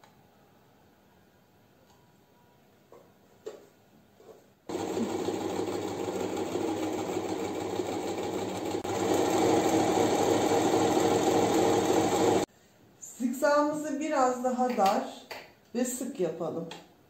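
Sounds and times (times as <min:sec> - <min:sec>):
sewing machine sewing: 0:04.7 - 0:12.5.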